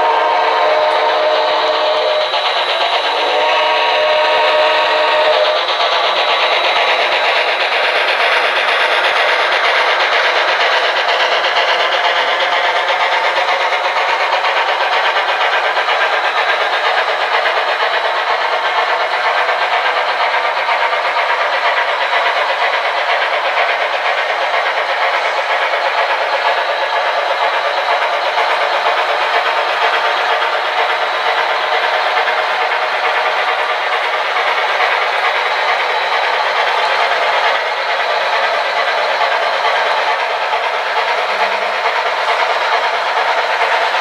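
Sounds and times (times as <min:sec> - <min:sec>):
model trains rolling: 0:00.0 - 0:44.0.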